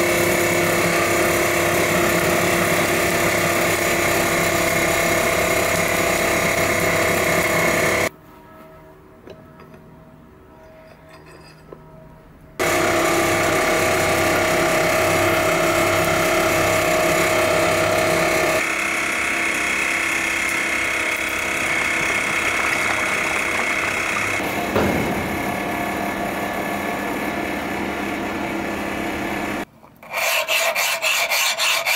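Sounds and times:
electric blower whirring hum: 0.0 - 8.1, 12.6 - 29.7.

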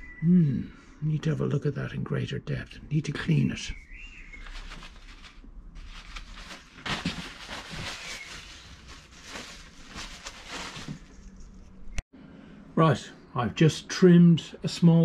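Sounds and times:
plastic bags and paper rustling: 4.2 - 12.0.

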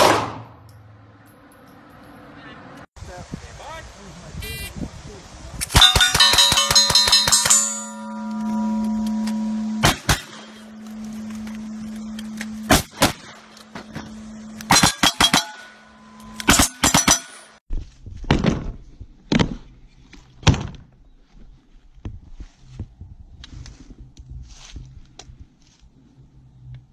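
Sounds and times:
rifle gunshots: 0.0 - 0.5
revolver gunshots: 0.0 - 0.6
steel target ringing: 5.7 - 11.0, 14.3 - 17.6.

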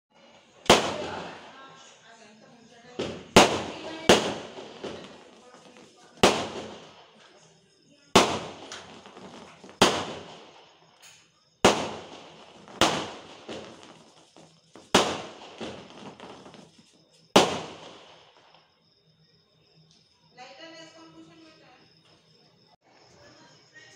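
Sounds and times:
firework bangs with crackle: 0.5 - 1.8, 2.9 - 18.7.

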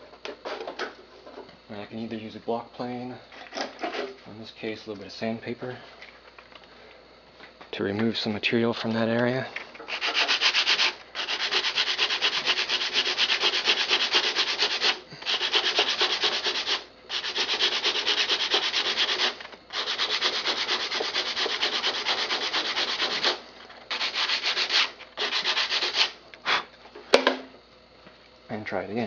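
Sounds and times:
sandpaper rubbing on wood: 9.9 - 26.2.

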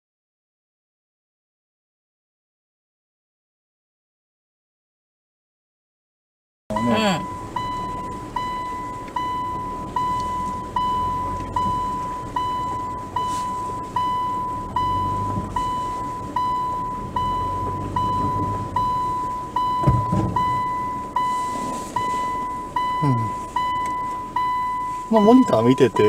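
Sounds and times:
car engine rumbling low: 6.7 - 26.0
reverse warning beeps: 6.7 - 26.0
low thump: 19.8 - 20.7.

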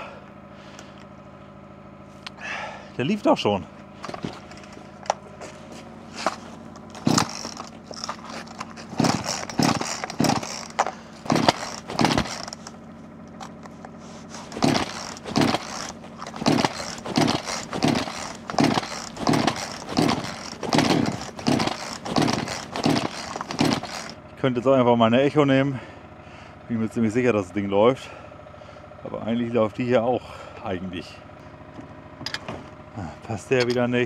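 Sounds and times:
chainsaw starter cord pulls: 4.0 - 5.4, 6.1 - 24.2.

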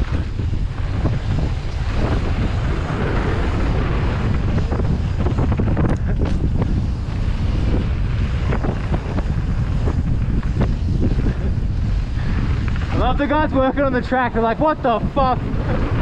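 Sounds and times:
bike rattling and clacking: 0.0 - 16.0
tyre roar on dirt: 0.0 - 16.0
wind rushing over microphone: 0.0 - 16.0.

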